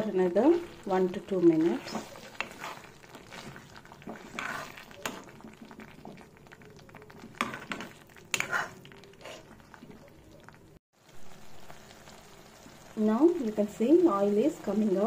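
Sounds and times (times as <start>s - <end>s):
gravy simmering in a pan: 0.2s - 15.0s
spoon scraping a pan: 0.4s - 6.3s, 7.2s - 10.0s.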